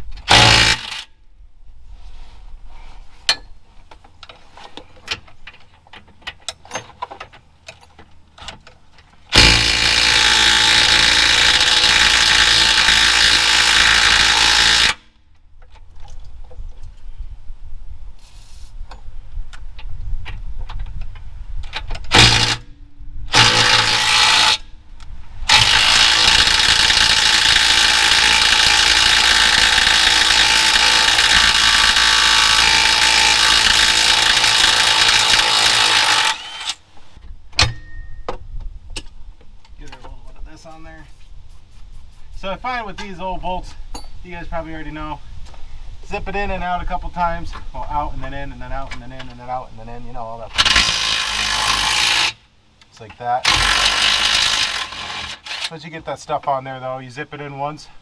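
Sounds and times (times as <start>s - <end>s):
power tool driving bolts: 0.1s - 1.1s, 9.3s - 15.1s, 21.6s - 24.7s, 25.5s - 36.8s, 50.5s - 52.4s, 53.4s - 55.8s.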